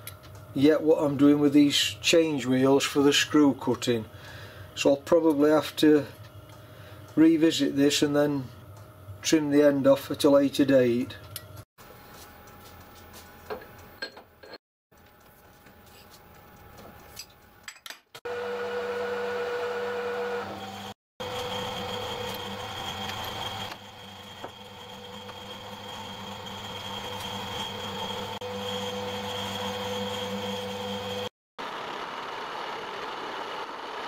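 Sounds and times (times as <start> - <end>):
lathe humming and whining: 18.3 - 34.0.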